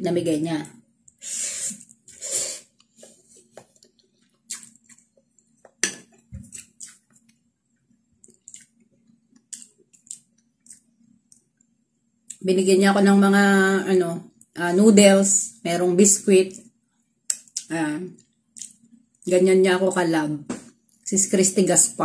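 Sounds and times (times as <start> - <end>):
quiet chewing: 1.8 - 7.4, 8.2 - 11.7.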